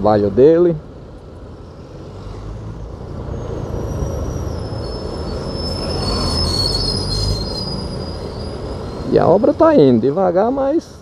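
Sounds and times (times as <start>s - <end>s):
low traffic rumble: 0.0s - 11.0s
high metallic squeal: 3.1s - 9.9s.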